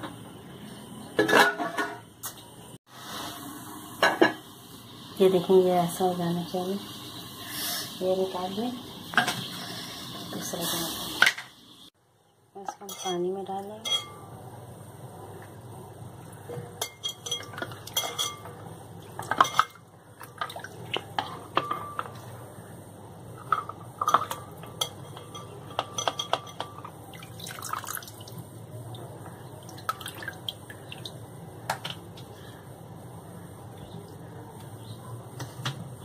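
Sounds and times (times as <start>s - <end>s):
water sloshing and dripping: 19.0s - 21.4s, 27.1s - 31.2s.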